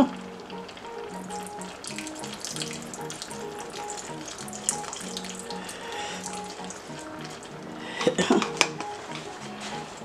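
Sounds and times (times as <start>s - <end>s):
background music: 0.0s - 10.0s
food sizzling in a pot: 0.2s - 7.8s.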